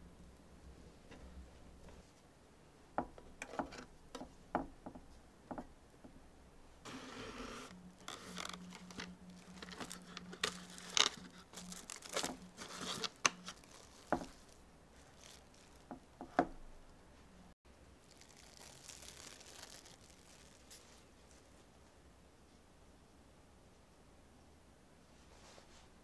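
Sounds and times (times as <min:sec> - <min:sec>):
plastic cling film crinkling: 0:07.6 - 0:16.1, 0:18.0 - 0:21.4.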